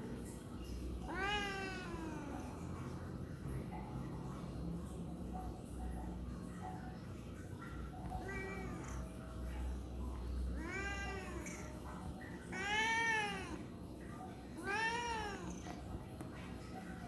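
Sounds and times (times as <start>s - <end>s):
cat meowing: 1.0s - 2.6s, 8.1s - 9.1s, 10.6s - 11.8s, 12.4s - 13.6s, 14.5s - 15.8s.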